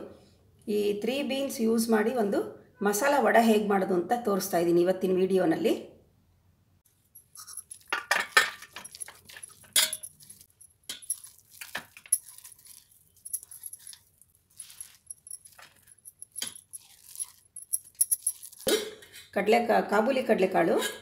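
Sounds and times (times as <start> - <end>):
bangles jingling: 7.1 - 18.7
metal jar and bowl clinking: 7.2 - 19.0.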